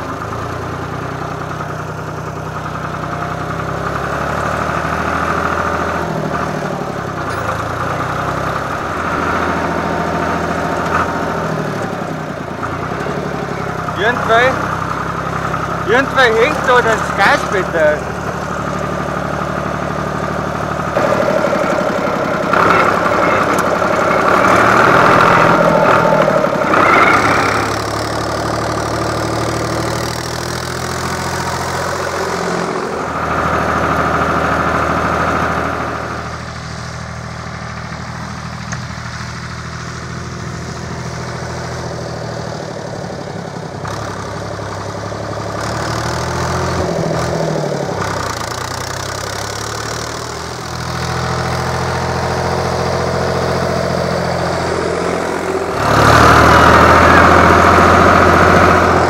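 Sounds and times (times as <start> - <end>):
tractor diesel engine under load: 0.0 - 59.0.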